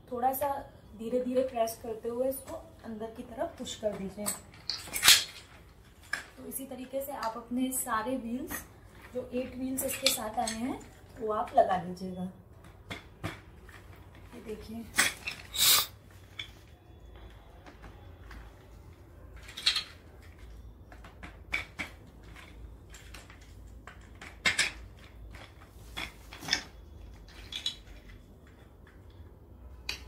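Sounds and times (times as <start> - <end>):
plastic wheels clicking and knocking: 19.4 - 30.0.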